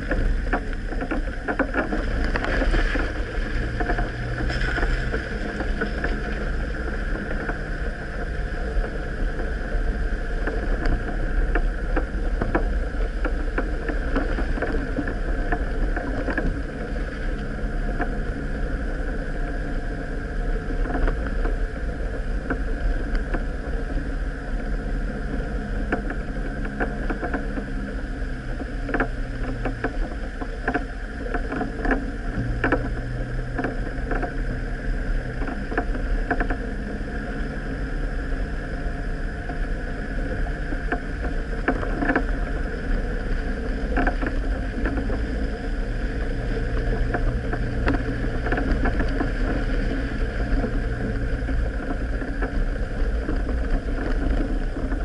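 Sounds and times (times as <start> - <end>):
vehicle knocks and rattles: 0.0 - 9.5, 39.4 - 55.0
off-road vehicle engine: 0.0 - 55.0.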